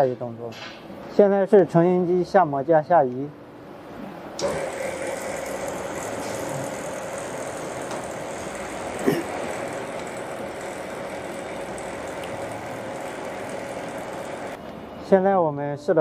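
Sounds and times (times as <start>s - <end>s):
machine motor humming: 4.4s - 14.6s.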